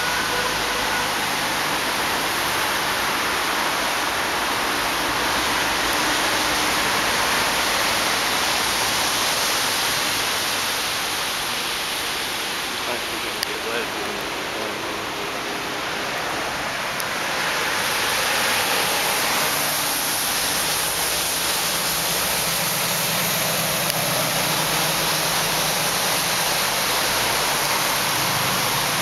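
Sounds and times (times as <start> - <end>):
heavy rain on paving and trees: 0.0 - 29.0.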